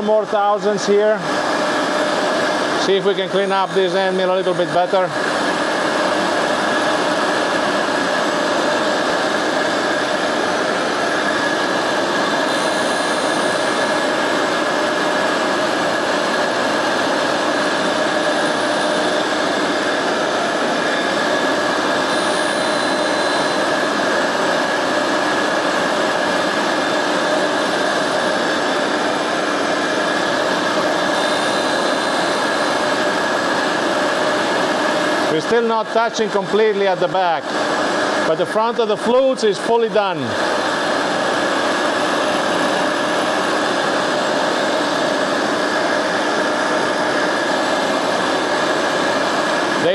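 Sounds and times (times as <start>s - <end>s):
shop vacuum running: 0.0s - 49.9s
grinder wheel whine: 0.9s - 38.3s.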